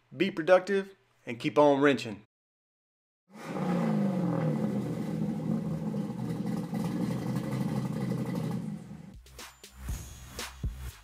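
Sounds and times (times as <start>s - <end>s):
car engine running: 3.4s - 9.1s.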